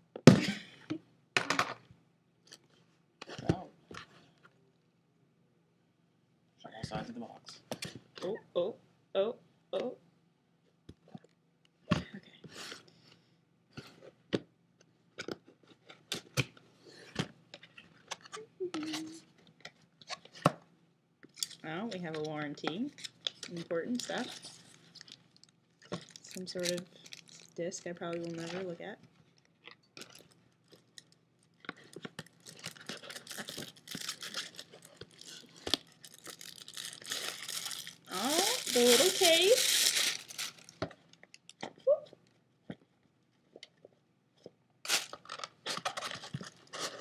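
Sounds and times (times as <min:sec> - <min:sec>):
wrapping crinkling: 0:23.0 - 0:41.6, 0:44.8 - 0:47.0
cardboard and plastic rustling: 0:23.2 - 0:28.8, 0:30.0 - 0:41.7, 0:44.9 - 0:47.0.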